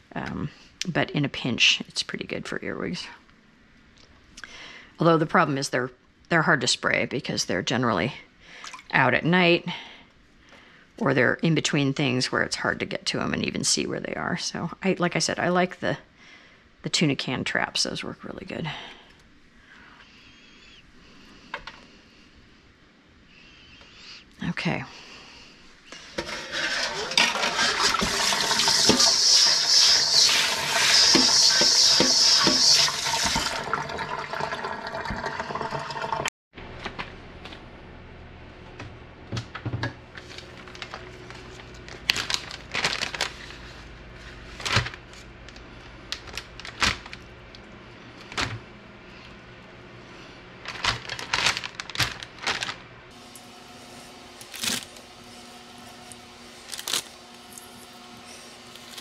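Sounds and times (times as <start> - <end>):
tap water running into sink: 26.2 - 36.3
plastic bag crinkling: 40.2 - 47.3, 50.6 - 59.0.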